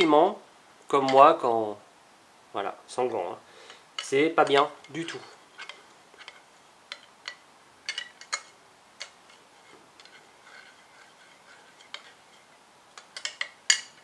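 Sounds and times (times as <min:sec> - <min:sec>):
metal spoon clinking on glass: 0:13.1 - 0:14.0.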